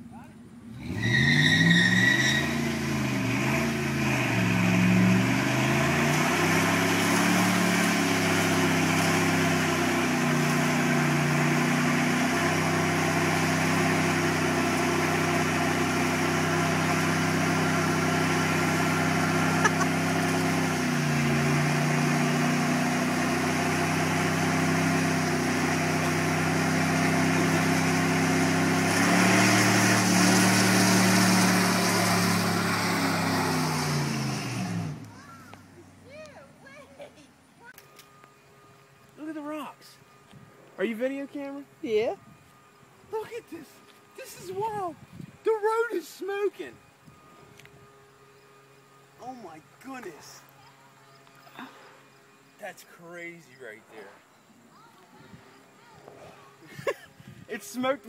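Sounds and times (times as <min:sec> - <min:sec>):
tires spinning on pavement: 0:00.6 - 0:36.8
engine revving at high revs: 0:00.7 - 0:35.1.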